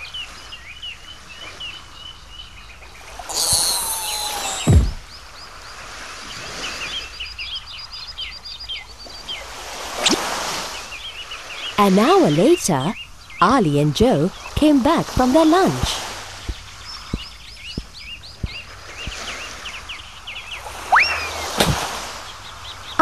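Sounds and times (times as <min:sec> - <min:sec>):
birds chirping: 0:00.0 - 0:23.0
cartoon falling tone and thump: 0:03.3 - 0:05.0, 0:20.9 - 0:21.9.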